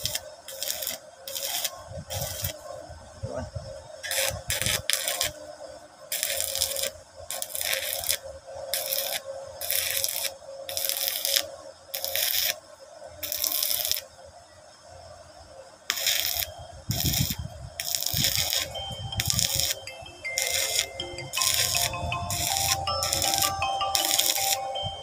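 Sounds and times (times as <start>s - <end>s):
welding arc crackling and sizzling: 0.0s - 2.8s, 4.0s - 12.6s, 13.2s - 14.1s, 15.9s - 24.8s
steady hum: 15.8s - 25.0s.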